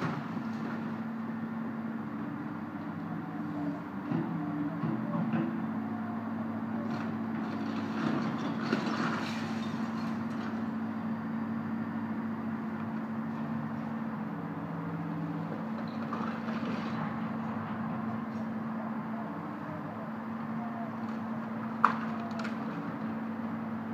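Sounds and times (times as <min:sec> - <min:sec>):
excavator diesel engine running: 0:00.0 - 0:23.9
demolition clatter and crunching: 0:06.8 - 0:10.8, 0:15.7 - 0:17.2.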